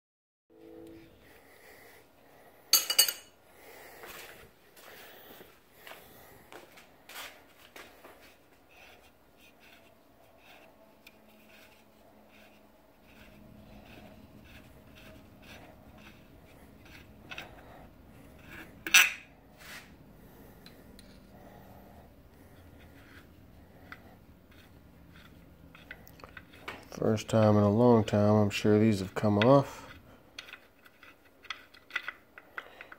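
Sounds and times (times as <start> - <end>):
metal clinks and taps: 2.7 - 3.3.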